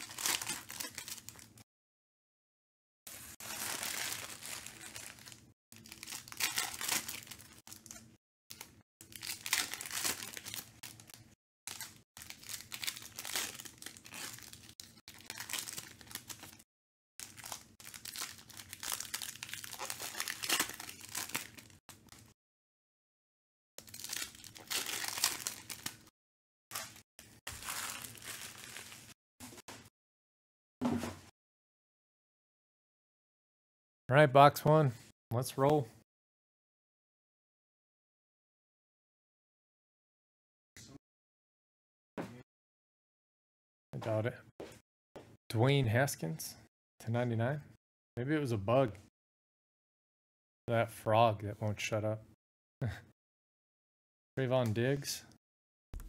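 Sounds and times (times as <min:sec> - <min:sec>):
foil card packs tearing: 0:00.0 - 0:01.4, 0:03.1 - 0:07.9, 0:09.1 - 0:16.6, 0:17.2 - 0:21.7, 0:23.8 - 0:26.0, 0:26.7 - 0:29.1
wrappers crinkling: 0:00.0 - 0:01.4, 0:03.1 - 0:08.0, 0:09.1 - 0:16.6, 0:17.2 - 0:21.8, 0:23.9 - 0:26.0, 0:26.8 - 0:29.2.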